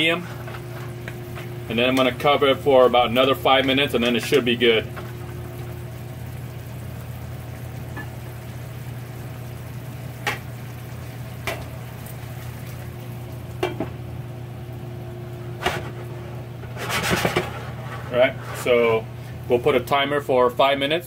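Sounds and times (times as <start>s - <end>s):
crab simmering in frying pan: 0.0s - 19.9s.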